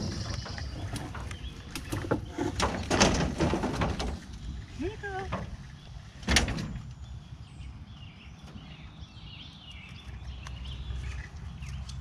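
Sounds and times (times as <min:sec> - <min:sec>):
birds chirping and warbling: 0:00.0 - 0:12.0.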